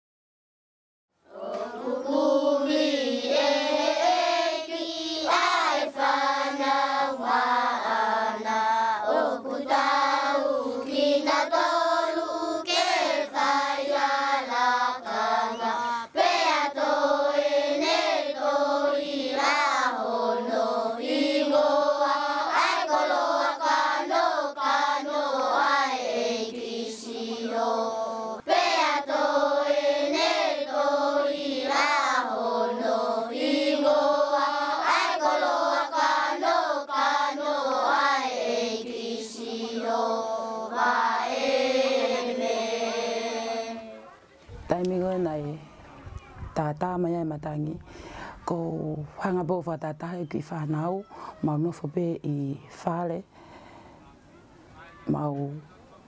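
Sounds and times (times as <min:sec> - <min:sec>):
choir of high voices singing: 0:01.3 - 0:44.0.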